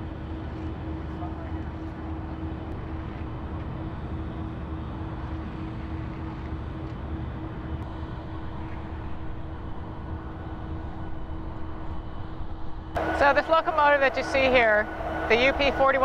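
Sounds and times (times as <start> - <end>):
diesel locomotive idling: 6.7 - 16.0.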